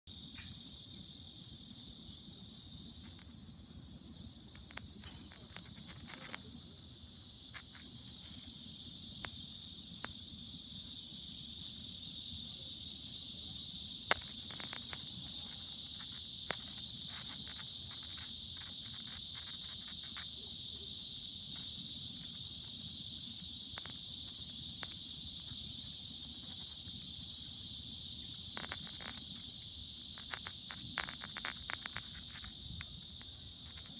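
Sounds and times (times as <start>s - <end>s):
high-pitched insect drone: 0.1s - 33.9s.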